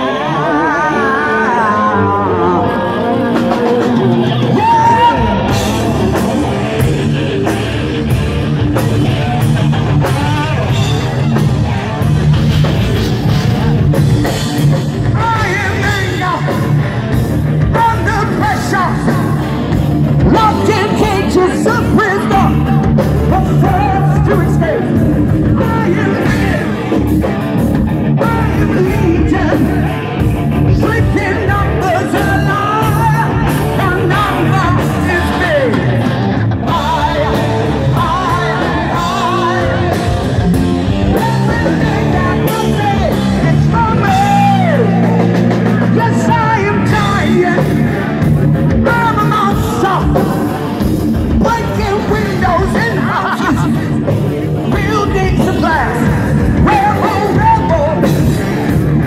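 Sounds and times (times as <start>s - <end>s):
person singing: 0.0s - 7.0s, 20.2s - 27.0s, 28.2s - 58.8s
distorted electric guitar: 0.0s - 59.0s
live heavy metal band: 0.0s - 59.0s.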